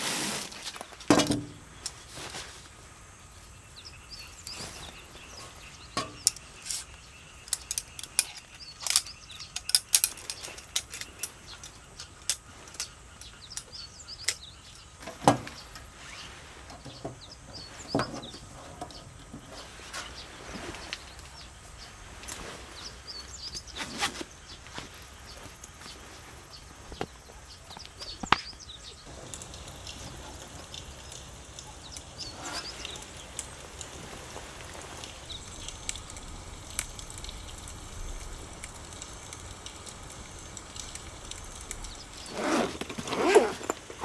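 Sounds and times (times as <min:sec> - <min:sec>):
clicks and clinks of gear: 0:06.0 - 0:15.9, 0:30.7 - 0:44.0.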